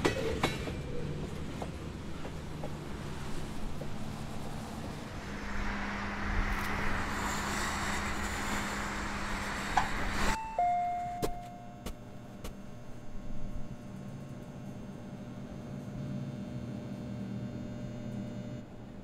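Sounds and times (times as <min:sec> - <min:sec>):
outdoor traffic hiss: 0:01.8 - 0:11.6
two-note door chime: 0:10.4 - 0:11.9.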